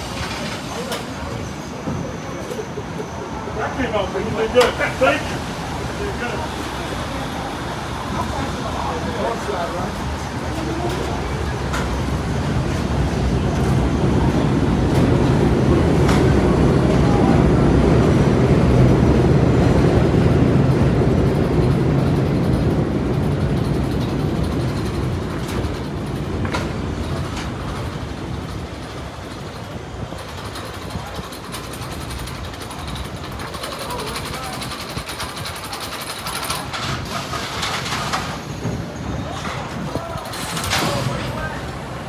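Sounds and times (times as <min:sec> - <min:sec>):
subway train rumbling on rails: 0:00.0 - 0:42.0
wheels clicking: 0:19.6 - 0:41.8.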